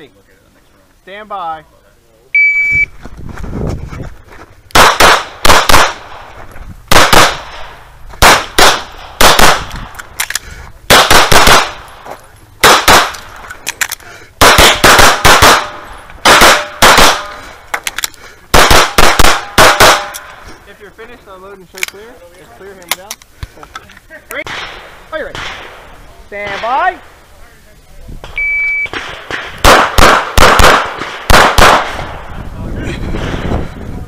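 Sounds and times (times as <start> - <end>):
handgun shots: 12.6 - 17.3, 18.6 - 20.3.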